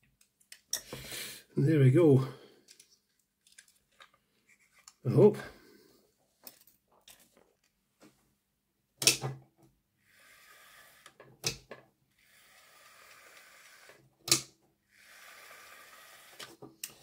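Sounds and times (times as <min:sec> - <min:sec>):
model train motor whirring: 0:10.0 - 0:11.2, 0:12.2 - 0:14.0, 0:14.9 - 0:17.0.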